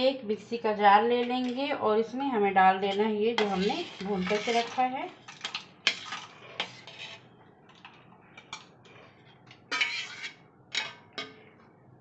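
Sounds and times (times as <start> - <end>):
spoon scraping steel plate: 3.4 - 7.3, 8.4 - 11.4.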